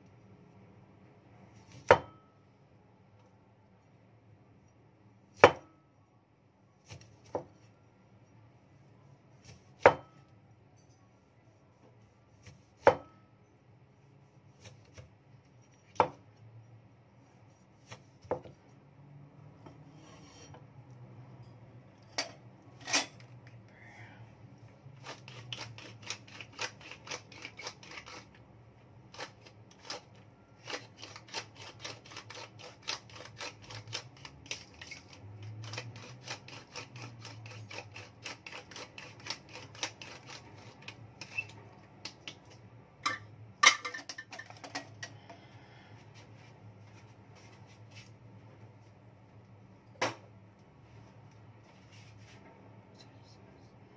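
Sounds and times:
pepper mill grinding: 0:25.0 - 0:28.4, 0:29.1 - 0:41.5.

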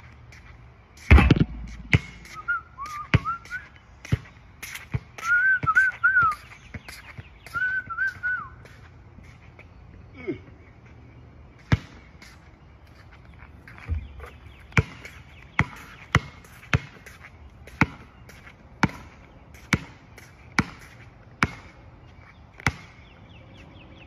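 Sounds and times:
basketball bouncing on asphalt: 0:00.4 - 0:08.9, 0:11.6 - 0:12.4, 0:13.7 - 0:23.2.

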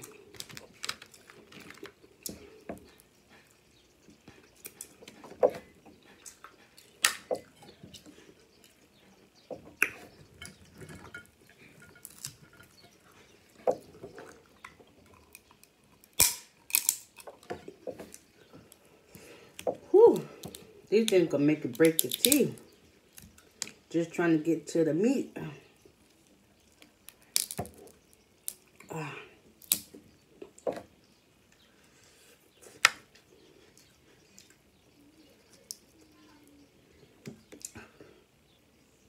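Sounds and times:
crab shells cracking: 0:00.0 - 0:03.1, 0:06.3 - 0:08.1, 0:09.8 - 0:12.9, 0:13.7 - 0:23.9, 0:26.0 - 0:30.6, 0:35.2 - 0:36.6
soft chewing: 0:00.0 - 0:20.9, 0:25.6 - 0:39.0.

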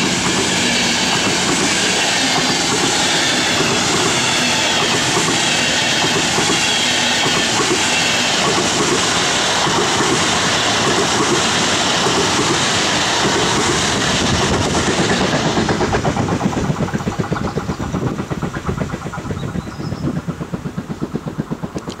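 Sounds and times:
train wheels rushing on rails: 0:00.0 - 0:22.0
wheels clattering on rails: 0:00.0 - 0:22.0.

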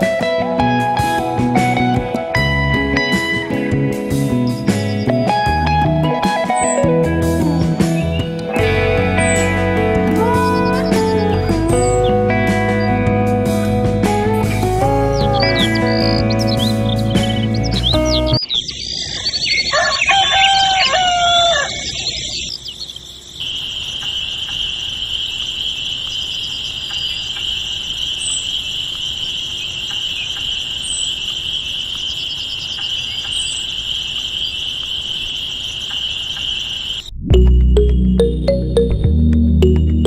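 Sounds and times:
rooster crowing: 0:19.4 - 0:22.2.

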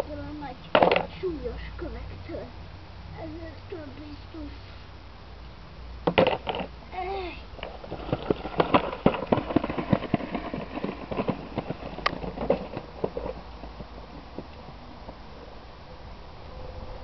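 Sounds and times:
stones rattling in plastic wheelbarrow: 0:06.1 - 0:06.7, 0:07.6 - 0:14.5.

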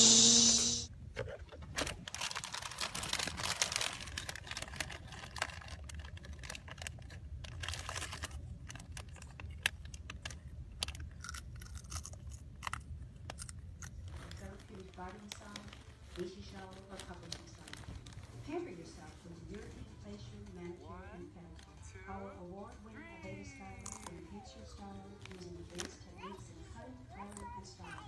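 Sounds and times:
foil bag crinkling: 0:01.6 - 0:12.6, 0:13.2 - 0:19.2, 0:25.0 - 0:26.4.

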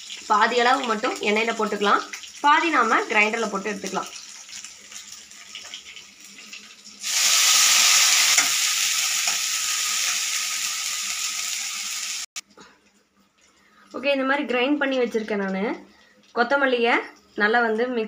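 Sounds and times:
loud sizzle of leaves in oil: 0:00.0 - 0:12.3
spices frying quietly in oil: 0:00.0 - 0:18.0.

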